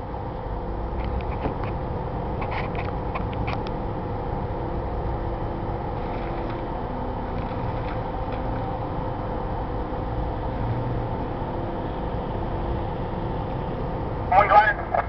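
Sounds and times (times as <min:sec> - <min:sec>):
engine running at low speed: 0:00.0 - 0:15.0
sharp clicks and rattles: 0:07.3 - 0:08.6.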